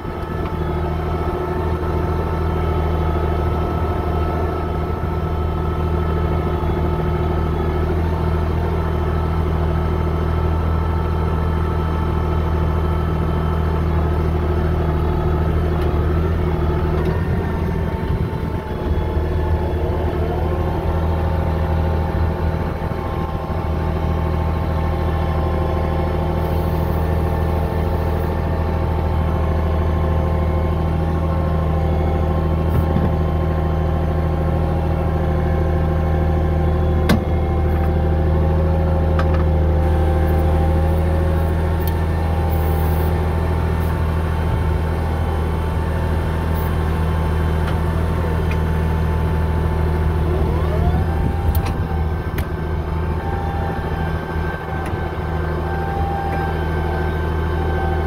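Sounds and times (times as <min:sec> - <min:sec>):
higher whine: 0:00.0 - 0:08.6, 0:15.0 - 0:28.4, 0:49.6 - 0:58.0
bulldozer engine humming: 0:00.0 - 0:58.0.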